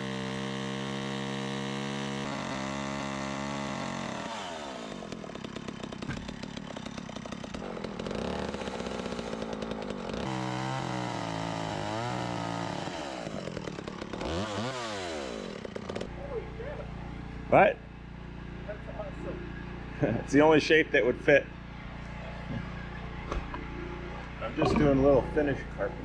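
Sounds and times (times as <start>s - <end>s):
chainsaw cutting wood: 0.0s - 17.4s.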